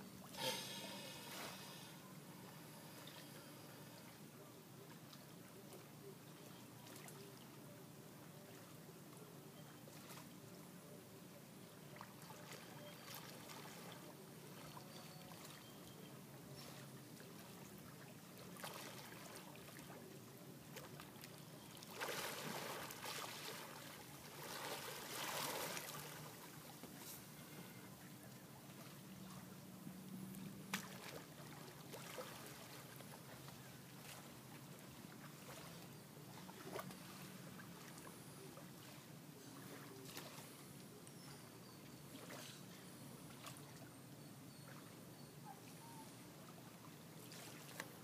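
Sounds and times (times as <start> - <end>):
faint lapping water: 0.0 - 48.0
manatees splashing: 0.2 - 5.8, 11.8 - 26.8, 30.4 - 48.0.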